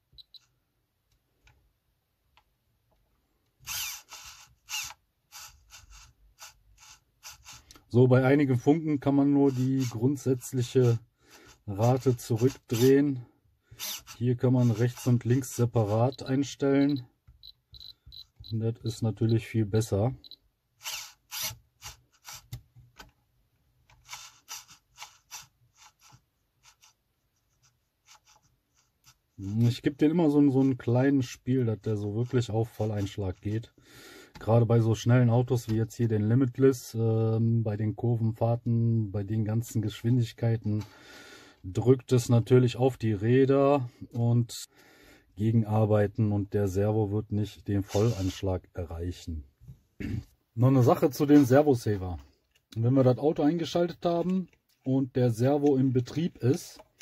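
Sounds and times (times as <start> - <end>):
servo whirring: 3.6 - 7.8, 13.8 - 17.0, 20.2 - 22.6, 47.9 - 48.4.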